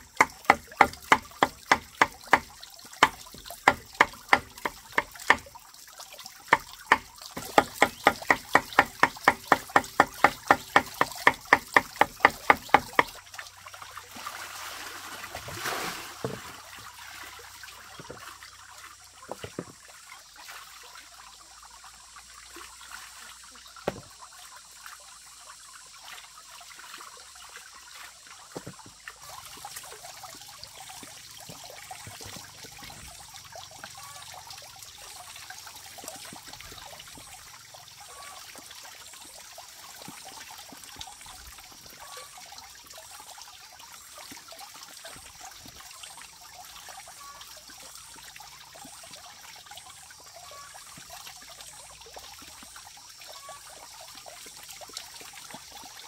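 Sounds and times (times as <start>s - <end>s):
water splashing in a bucket: 0.0s - 56.0s
cleaver chopping on wooden block: 0.1s - 5.5s, 6.5s - 13.1s.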